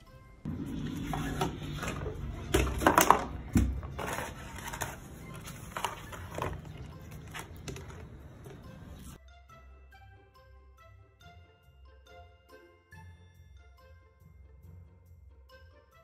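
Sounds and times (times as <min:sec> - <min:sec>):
plastic dustpan clattering and scraping: 0:00.5 - 0:08.7.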